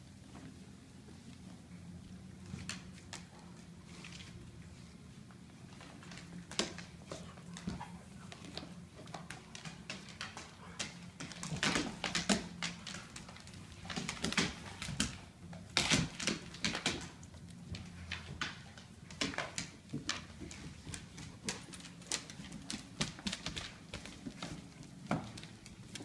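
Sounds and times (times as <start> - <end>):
dog claws clicking on wood floor: 2.5 - 4.4, 5.7 - 26.0.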